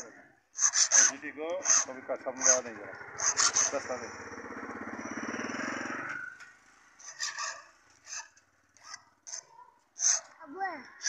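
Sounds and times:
motorcycle engine running: 1.1 - 7.0.

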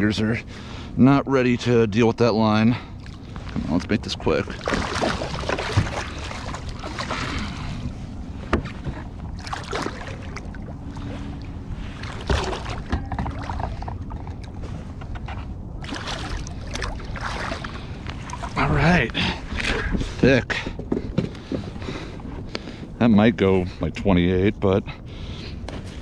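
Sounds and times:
fish splashing in water: 4.5 - 7.8, 9.3 - 14.6, 15.8 - 18.6.

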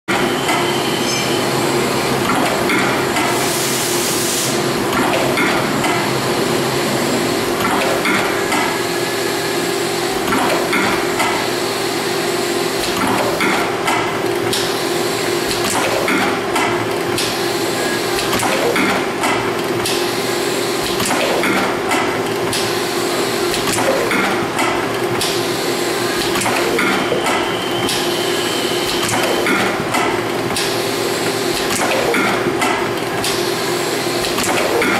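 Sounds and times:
machine humming: 0.1 - 34.9
machine clacks and knocks: 2.2 - 3.4, 4.9 - 6.1, 10.2 - 11.5, 12.8 - 14.7, 15.4 - 17.4, 18.2 - 20.1, 20.8 - 22.8, 23.5 - 25.4, 26.2 - 28.1, 28.9 - 33.5, 34.2 - 34.9.

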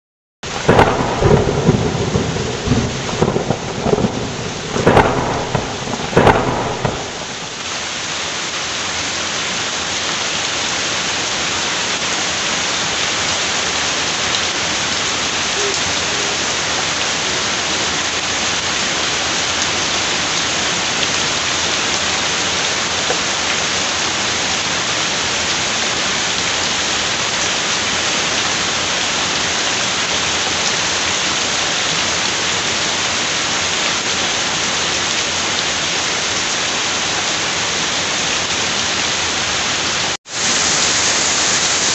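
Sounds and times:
low rumbles and knocks: 4.0 - 7.4.

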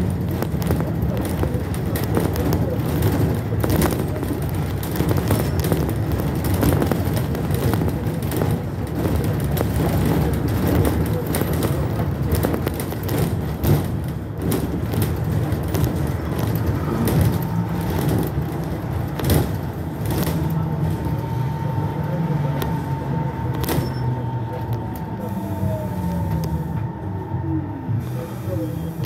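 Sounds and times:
rattles and knocks from the body: 0.0 - 21.2
trolleybus rumbling: 0.0 - 29.0.

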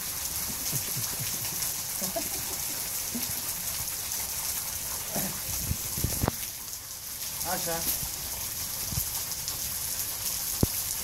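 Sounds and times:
steady rain-like hiss: 0.0 - 11.0.

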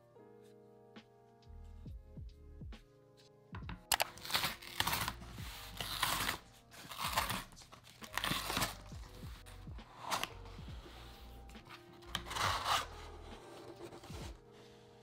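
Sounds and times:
cardboard tear strip ripping: 3.9 - 8.9, 12.0 - 13.2.

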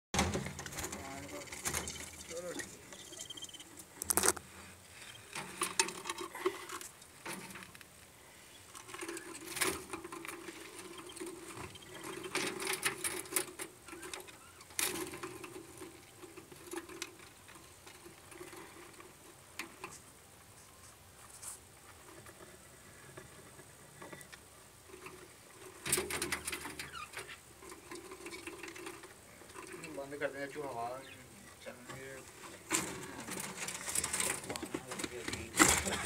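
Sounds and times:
budgerigar chicks chittering: 1.2 - 4.0, 10.9 - 12.4.

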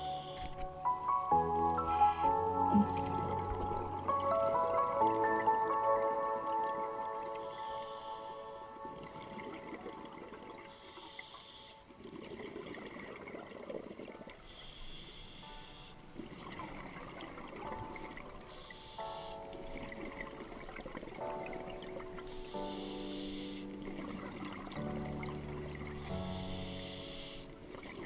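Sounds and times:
soft background music: 0.0 - 28.0
exhaust bubbles burbling: 2.4 - 4.4
regulator hissing inhale: 7.4 - 8.8, 10.7 - 11.8, 14.5 - 16.0, 18.5 - 19.5, 22.4 - 23.7, 26.2 - 27.5.

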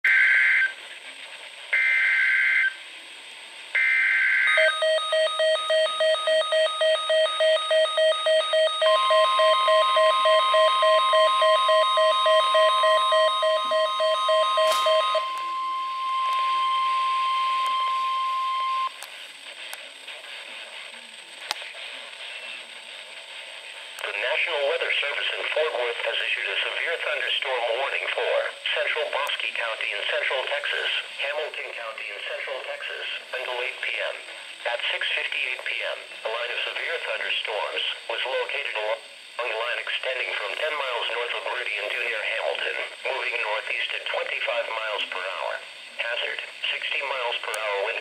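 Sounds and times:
long steady warning tone: 0.1 - 0.8, 1.7 - 2.9, 3.7 - 19.0
rapid pulsing alarm beep: 3.8 - 19.0.

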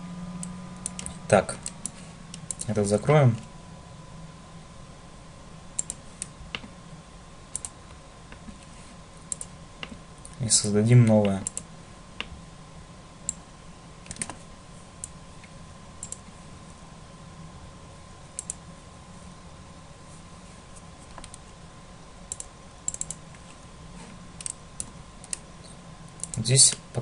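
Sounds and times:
faint steady hum: 0.0 - 27.0
thin steady whine: 0.0 - 27.0
computer mouse clicks: 0.4 - 2.7, 5.8 - 6.7, 7.5 - 8.4, 9.3 - 10.4, 11.2 - 12.3, 14.0 - 14.4, 16.0 - 16.3, 18.4 - 18.6, 21.1 - 21.4, 22.3 - 23.5, 24.4 - 25.4, 26.1 - 26.8.

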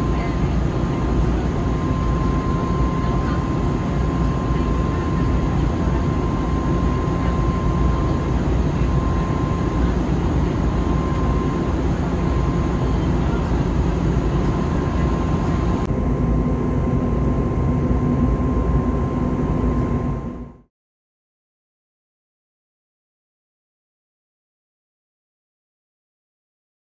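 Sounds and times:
airplane engines droning: 0.0 - 20.7
low steady hum: 0.0 - 20.7
thin steady whine: 0.0 - 20.7.

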